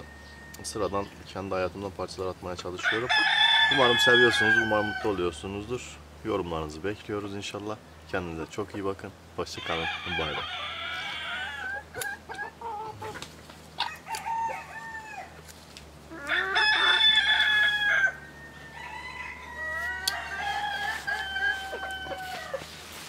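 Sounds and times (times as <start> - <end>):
rooster crowing: 0.0 - 1.0, 2.8 - 5.2, 9.6 - 11.8, 13.8 - 15.4, 16.1 - 22.7
rooster clucking: 9.6 - 15.4, 16.1 - 22.8.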